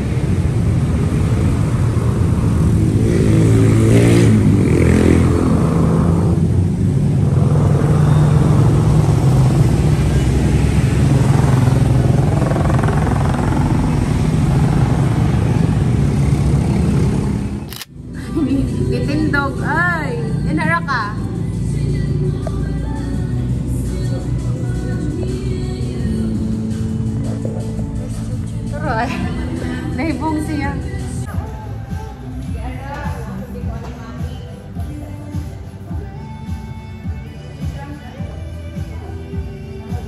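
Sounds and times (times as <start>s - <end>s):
motorcycle passing loudly: 0.0s - 31.2s
steady engine rumble: 0.0s - 40.0s.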